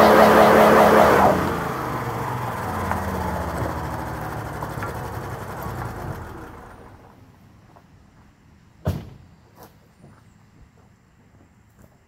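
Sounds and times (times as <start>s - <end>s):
pickup engine running: 0.0s - 7.4s.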